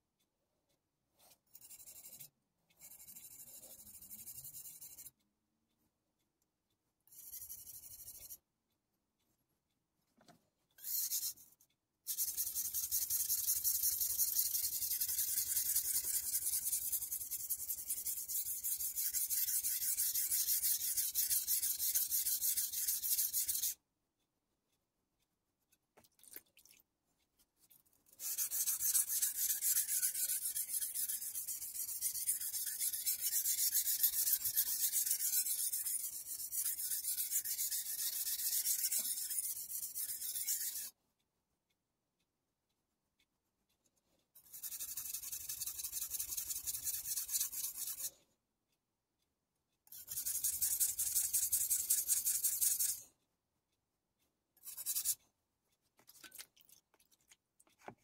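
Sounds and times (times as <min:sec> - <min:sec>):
knife scraping on whetstone: 0:12.2 - 0:23.7, 0:28.2 - 0:40.9, 0:44.6 - 0:48.2, 0:54.6 - 0:55.2.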